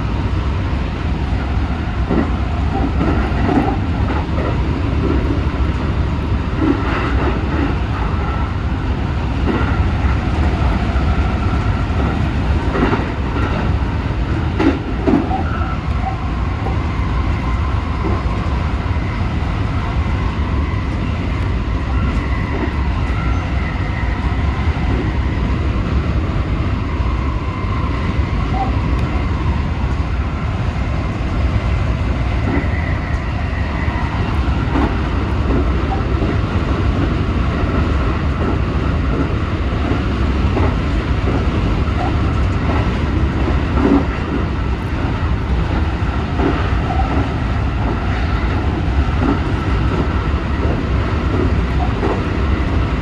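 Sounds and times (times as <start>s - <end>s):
train wheels rumbling on rail: 0.0s - 53.0s.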